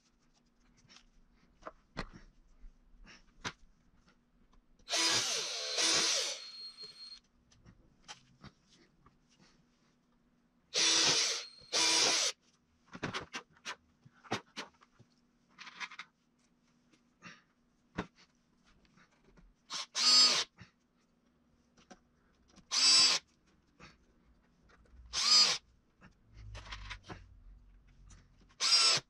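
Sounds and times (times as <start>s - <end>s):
cordless drill whining: 4.9s - 7.2s, 10.8s - 12.4s, 19.7s - 20.5s, 22.7s - 23.2s, 25.1s - 25.6s, 28.6s - 29.0s.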